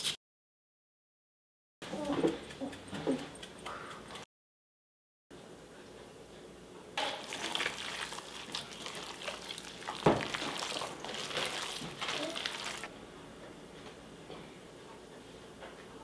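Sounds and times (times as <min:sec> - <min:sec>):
hands squelching raw meat: 0:07.2 - 0:12.9.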